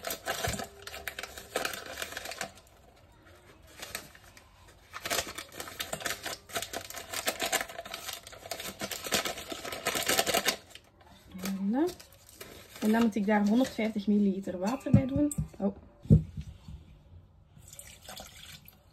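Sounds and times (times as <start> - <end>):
sachet crinkling: 0.0 - 13.8.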